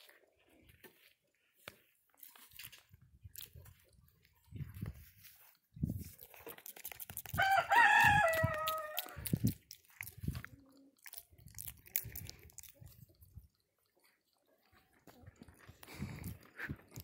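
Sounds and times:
monkey chewing food: 2.1 - 17.0
rooster crowing: 7.4 - 9.2.

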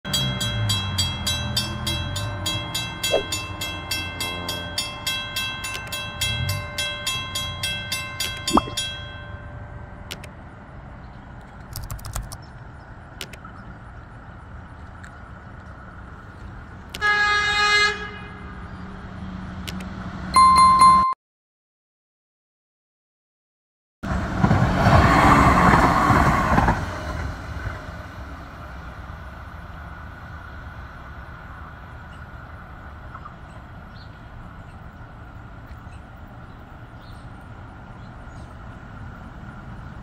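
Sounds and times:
railroad crossing bell ringing: 0.1 - 10.8, 20.3 - 21.2
train horn blast: 16.9 - 18.7.

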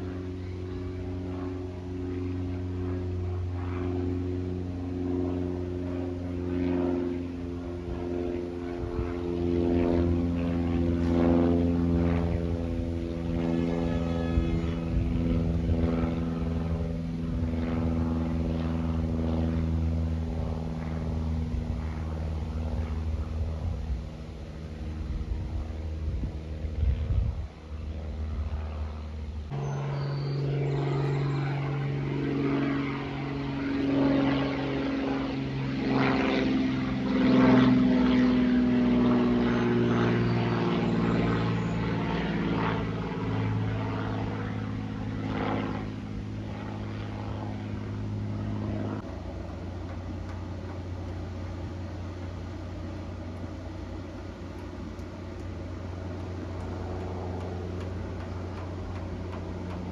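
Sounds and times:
propeller airplane engine drone: 0.0 - 59.9.

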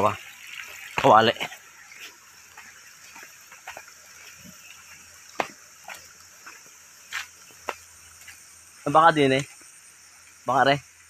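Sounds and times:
high hiss of insects: 0.0 - 11.0
footsteps on stony dirt path: 0.6 - 8.6.

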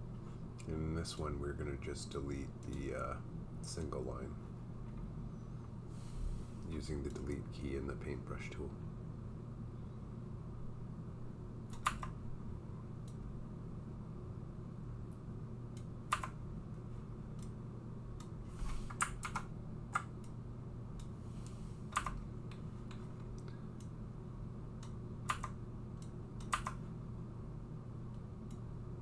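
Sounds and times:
steady low hum: 0.0 - 29.0
computer keyboard and mouse clicks: 11.7 - 12.2, 16.1 - 16.4, 18.9 - 20.4, 21.9 - 23.9, 24.8 - 26.8.

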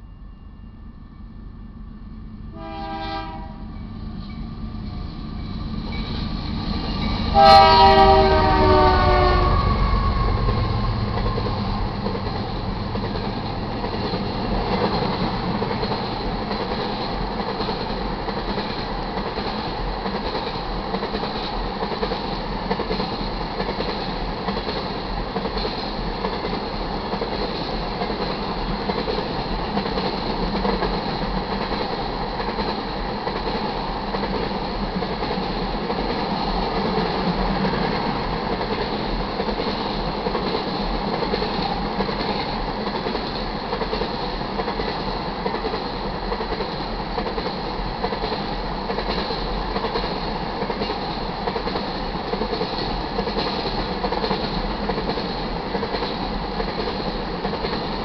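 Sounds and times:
diesel locomotive rumbling: 0.1 - 45.7
train wheels rumbling and clattering: 3.7 - 58.0.

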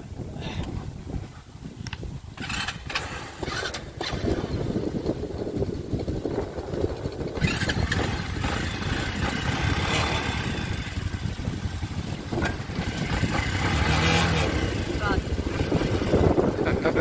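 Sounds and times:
quad bike engine rumbling: 0.4 - 17.0.

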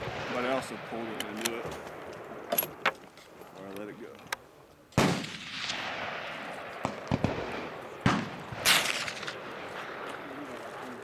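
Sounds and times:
rifle shots with rolling echo: 0.0 - 2.9, 4.9 - 11.0.

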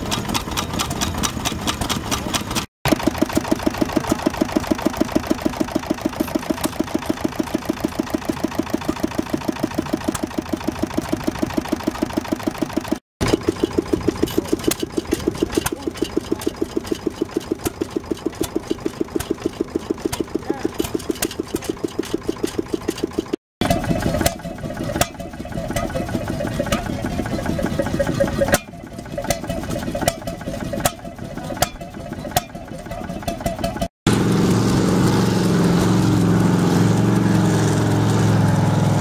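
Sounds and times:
stationary engine running: 0.0 - 39.0.

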